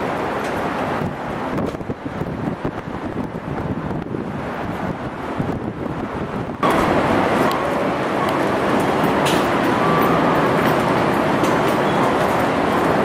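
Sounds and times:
traffic noise: 0.0 - 13.0.

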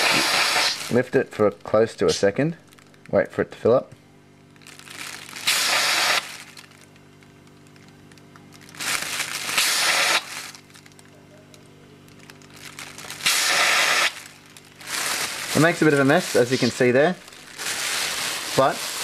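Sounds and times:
gas hissing from relief valve: 0.0 - 0.9, 5.4 - 6.3, 9.5 - 10.3, 13.2 - 14.2
plastic bag crinkling: 2.6 - 3.2, 4.5 - 19.0.

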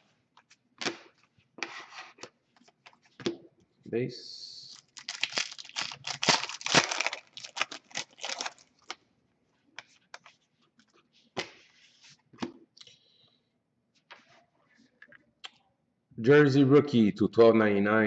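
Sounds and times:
foil wrapper tearing and crinkling: 4.7 - 9.0.

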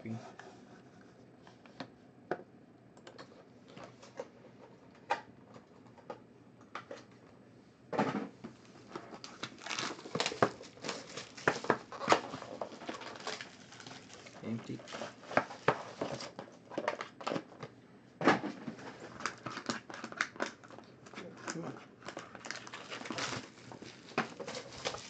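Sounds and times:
foil pack crinkling: 8.8 - 17.4, 19.0 - 25.0.

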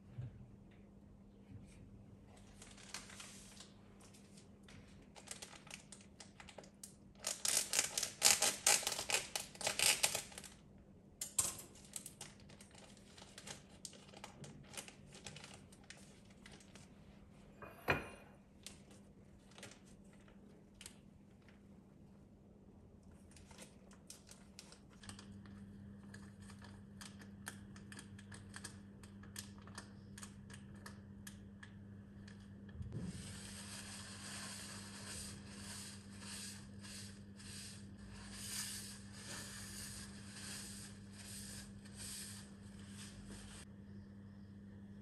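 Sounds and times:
flour bag crinkling: 2.4 - 10.6, 11.8 - 16.9, 19.4 - 21.6
low steady hum: 14.2 - 45.0
wiping a stone countertop: 33.0 - 43.7.

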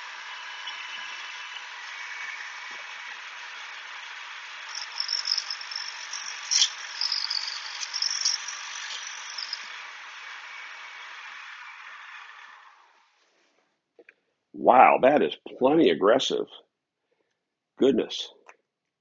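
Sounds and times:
high-pitched grinding scrape: 0.0 - 12.9
grinding wheel spinning: 0.0 - 13.2.

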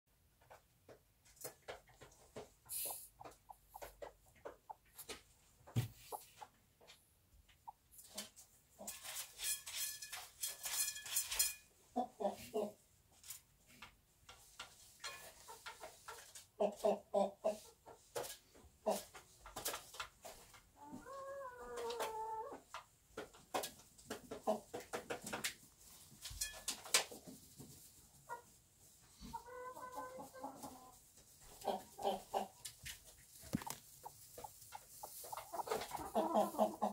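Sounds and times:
hen clucking softly: 2.0 - 8.9, 12.0 - 12.8, 15.4 - 19.1, 20.8 - 22.6, 29.2 - 36.9
hen clucking and calling: 2.6 - 5.2, 31.5 - 32.7, 33.6 - 36.9.

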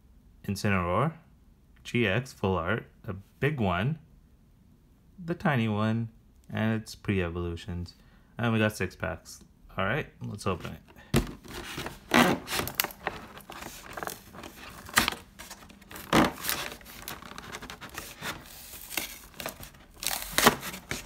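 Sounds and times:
cardboard crinkling and rustling: 10.5 - 21.0
sharp cracks of cardboard: 11.2 - 21.0
cardboard box tearing open: 11.3 - 21.0.

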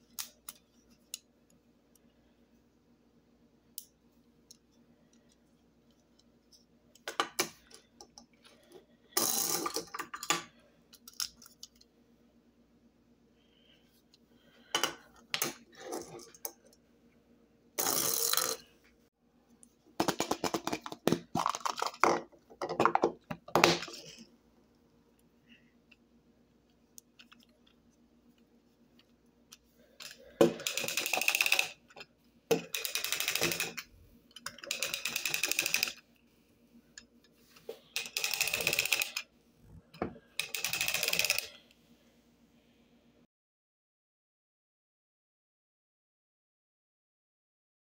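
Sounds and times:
plastic toy mechanism clicking: 30.6 - 31.8, 32.5 - 36.0, 38.0 - 39.2, 40.4 - 41.5.

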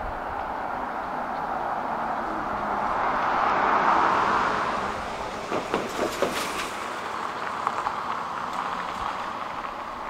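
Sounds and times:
freight cars rolling on rails: 0.0 - 10.0
wheels clacking: 4.9 - 10.0.

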